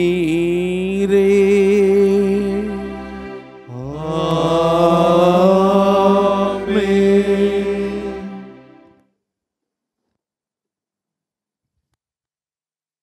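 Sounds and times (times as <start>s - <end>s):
liturgical chant singing: 0.0s - 8.9s.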